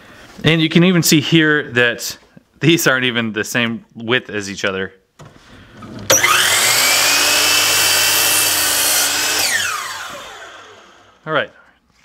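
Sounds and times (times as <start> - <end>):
miter saw whining: 6.1 - 11.2
saw cutting wood: 6.1 - 11.2.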